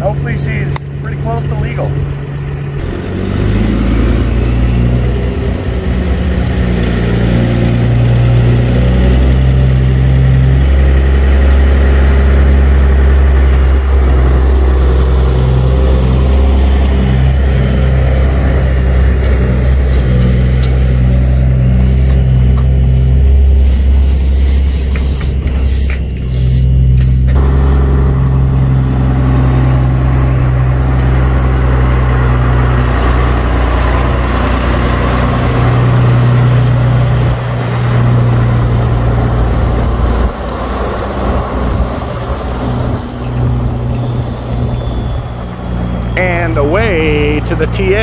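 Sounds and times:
truck diesel engine drone: 0.0s - 48.0s.

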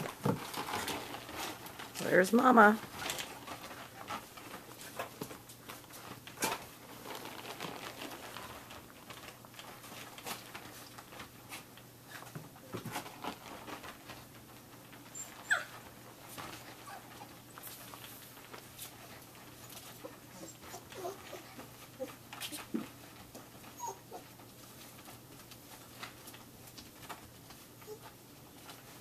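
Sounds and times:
puppies scrambling and playing: 0.0s - 29.0s
puppy whining: 15.0s - 18.0s, 19.2s - 24.7s, 27.8s - 28.2s.

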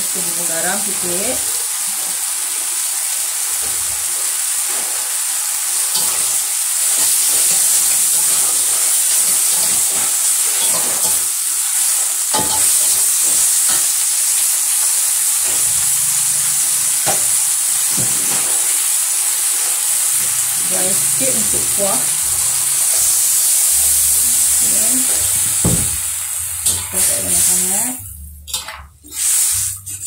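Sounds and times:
vegetables sizzling in a wok: 0.0s - 30.0s
metal spatula scraping a wok: 26.6s - 30.0s.

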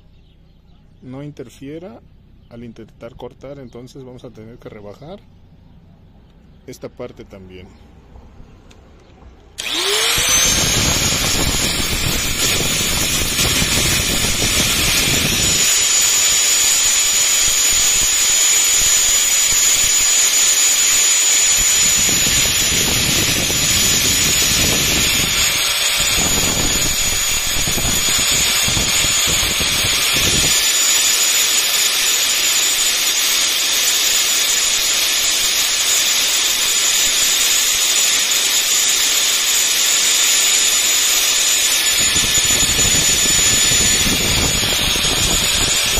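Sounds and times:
angle grinder whine: 9.6s - 45.9s
grinder disc grinding steel: 9.6s - 45.9s.

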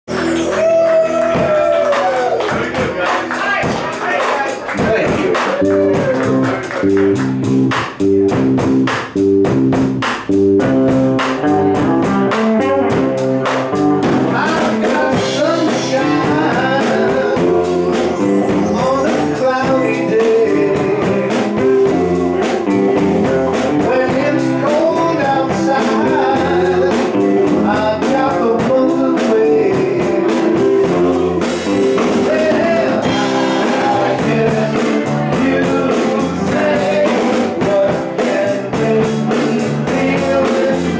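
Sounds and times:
person singing: 0.1s - 7.4s, 14.1s - 40.9s
guitars: 0.1s - 40.9s
steady drumbeat: 0.1s - 40.9s.

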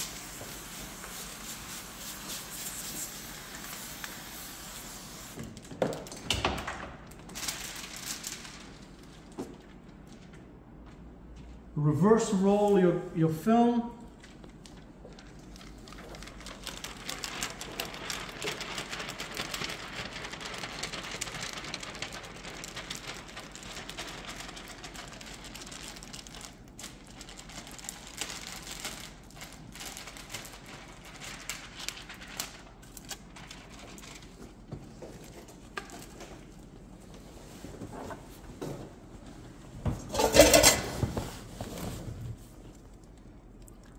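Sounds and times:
plastic film crinkling: 7.0s - 10.3s, 14.1s - 37.1s.

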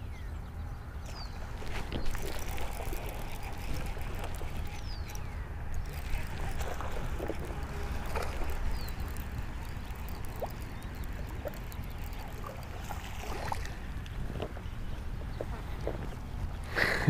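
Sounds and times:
wind rumble on microphone: 0.0s - 17.0s
fishing reel clicks: 1.9s - 13.7s.

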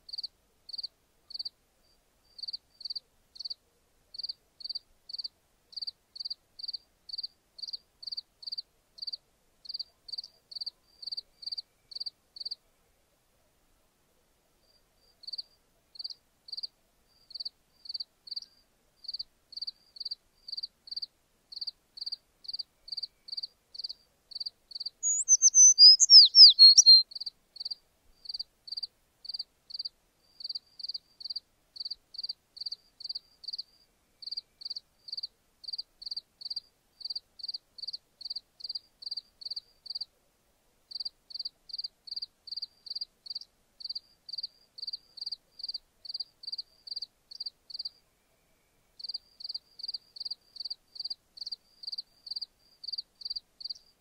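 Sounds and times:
fast chirps sweeping downward: 25.0s - 27.0s
insects chirping: 25.0s - 27.0s.

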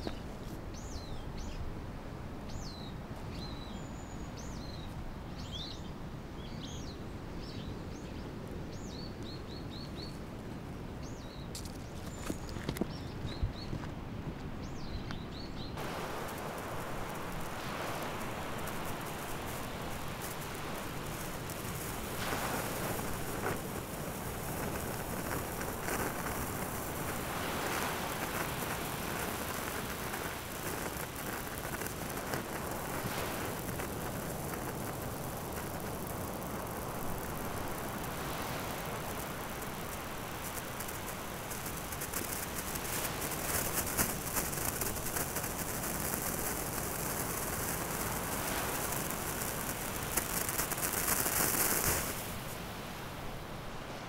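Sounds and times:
wind: 0.0s - 54.0s
sparkler fizzing and crackling: 15.8s - 53.2s
waves at the seashore: 15.8s - 54.0s.

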